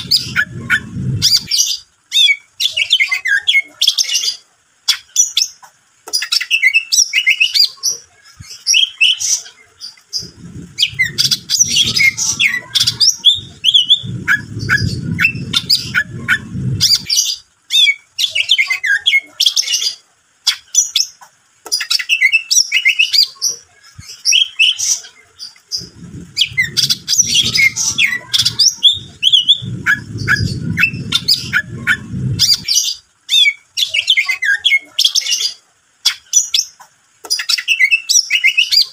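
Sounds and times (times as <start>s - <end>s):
low muffled rumble: 0.0s - 1.6s, 10.1s - 17.2s, 25.7s - 32.8s
bird singing chirps and trills: 0.0s - 38.9s.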